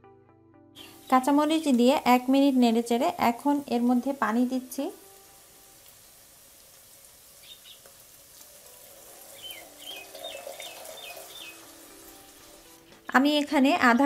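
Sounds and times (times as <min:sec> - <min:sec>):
high falling chirps: 0:00.8 - 0:01.4, 0:07.4 - 0:07.9, 0:09.2 - 0:12.1
faint frying sizzle: 0:00.8 - 0:13.6
water pouring: 0:05.0 - 0:13.0.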